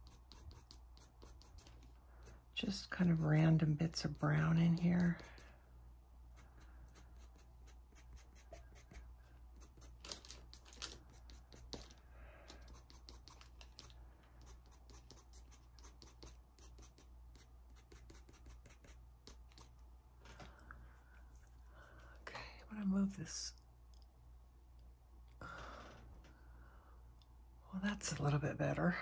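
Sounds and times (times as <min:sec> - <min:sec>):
pencil scratching on paper: 0:00.0 - 0:05.6, 0:06.3 - 0:11.9, 0:12.5 - 0:19.7.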